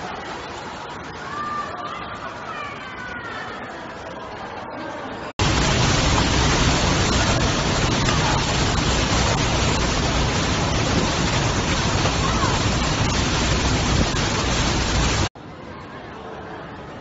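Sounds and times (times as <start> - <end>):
heavy rain: 0.0 - 2.2, 5.4 - 15.4
wind buffeting microphone: 5.4 - 15.3.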